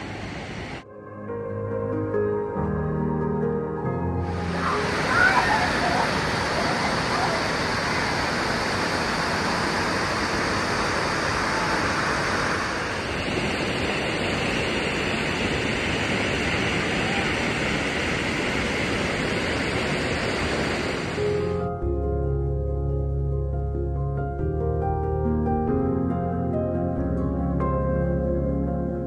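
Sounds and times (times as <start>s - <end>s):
waterfall rushing onto rock: 4.3s - 13.2s.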